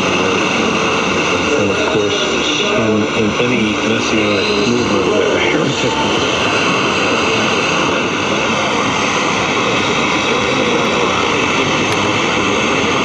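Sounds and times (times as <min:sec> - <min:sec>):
jumbled radio stations: 0:00.0 - 0:13.0
radio static hiss: 0:00.0 - 0:13.0
steady whistling tones: 0:00.7 - 0:08.8.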